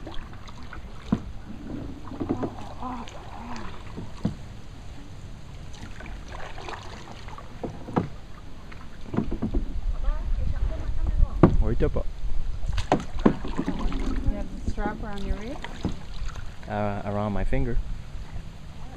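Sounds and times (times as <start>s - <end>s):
paddle knocking on canoe hull: 0.0s - 2.8s, 3.6s - 4.5s, 5.8s - 10.0s, 10.9s - 11.8s, 12.7s - 16.4s
low water wash: 0.0s - 18.9s
paddle through water: 0.0s - 18.9s.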